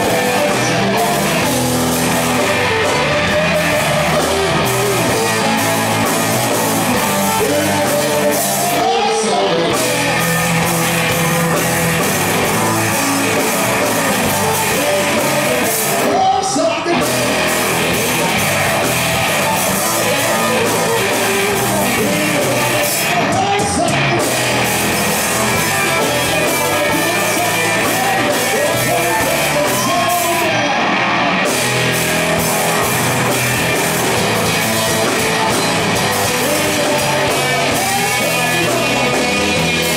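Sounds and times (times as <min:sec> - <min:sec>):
rock band playing: 0:00.0 - 0:39.9.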